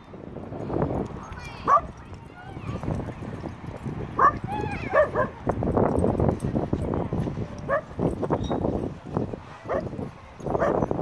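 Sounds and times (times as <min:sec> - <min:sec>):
dog barking: 0:01.7 - 0:01.9, 0:04.2 - 0:05.4, 0:07.7 - 0:07.9, 0:09.7 - 0:09.9, 0:10.6 - 0:10.9.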